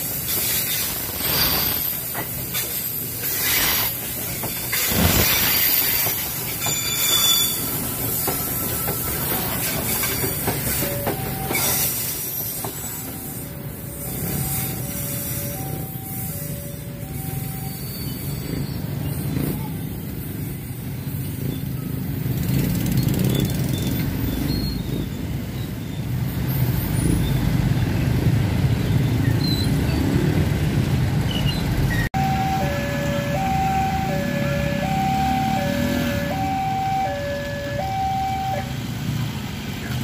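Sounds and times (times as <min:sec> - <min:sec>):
train wagons rumbling on rails: 0:00.0 - 0:40.0
level crossing two-tone alarm: 0:32.2 - 0:38.8.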